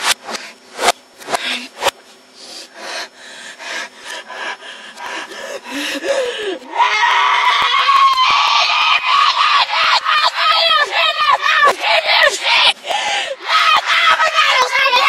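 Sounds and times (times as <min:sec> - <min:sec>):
reversed high yell: 0:06.6 - 0:12.8, 0:13.4 - 0:15.0.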